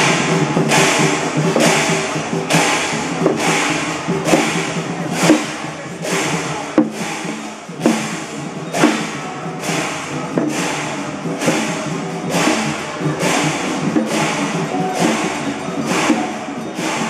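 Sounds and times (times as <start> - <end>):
cymbals and gongs clashing: 0.0 - 17.0.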